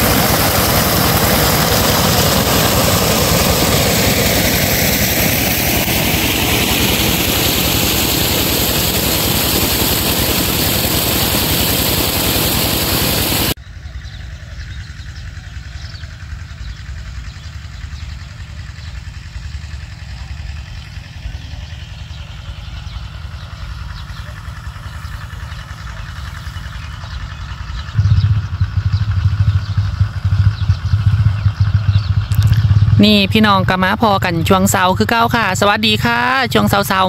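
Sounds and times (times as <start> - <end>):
pump engine running: 0.0 - 13.6, 15.2 - 37.0.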